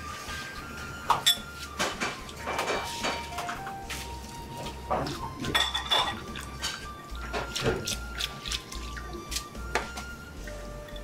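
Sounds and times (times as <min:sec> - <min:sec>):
liquid pouring and sloshing: 0:00.0 - 0:11.0.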